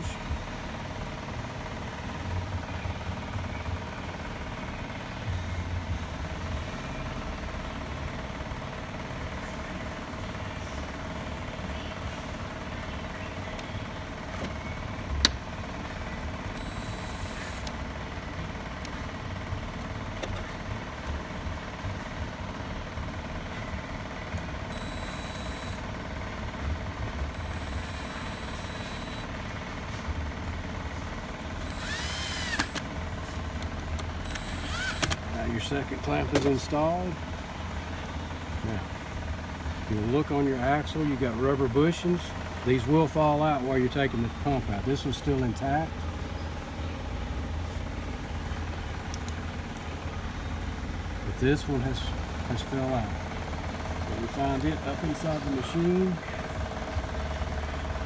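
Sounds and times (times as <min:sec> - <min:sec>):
cordless drill motor whine: 0:16.6 - 0:17.8, 0:24.7 - 0:25.9, 0:27.3 - 0:29.3, 0:31.6 - 0:32.9, 0:34.2 - 0:35.2.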